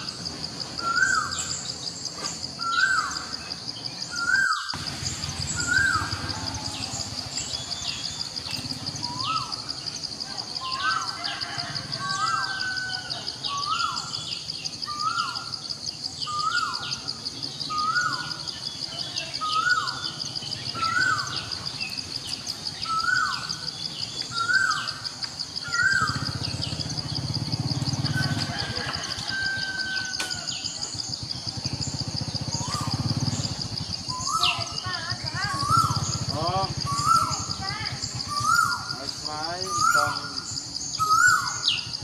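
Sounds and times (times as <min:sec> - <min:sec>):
high pulsing drone: 0:04.7 - 0:10.2.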